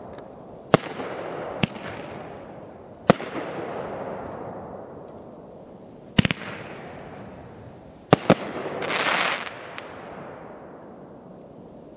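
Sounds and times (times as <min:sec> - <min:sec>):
firework crackling: 0:05.9 - 0:10.6
firework bangs: 0:06.2 - 0:10.3.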